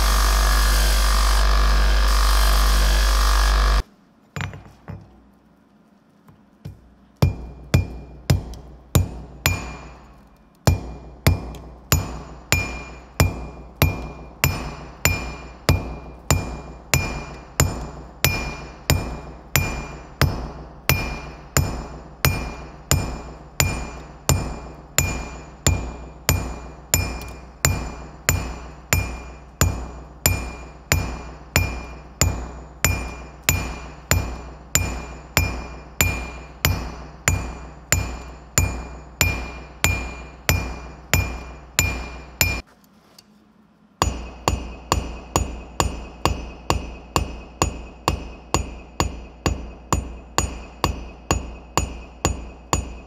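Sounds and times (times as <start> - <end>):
power grinder grinding steel: 0.0 - 3.8
hammer strikes on anvil: 7.2 - 42.6, 44.0 - 53.0.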